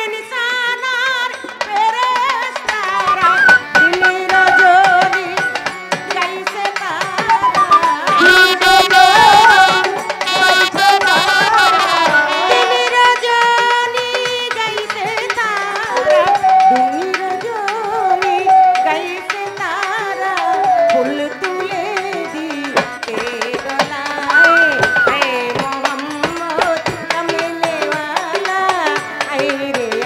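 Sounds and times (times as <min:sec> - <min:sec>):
woman singing: 0:00.0 - 0:30.0
hand drum rhythm: 0:01.4 - 0:30.0
wavering melodic accompaniment: 0:02.9 - 0:06.0, 0:07.2 - 0:12.9, 0:15.9 - 0:19.3, 0:24.3 - 0:25.6.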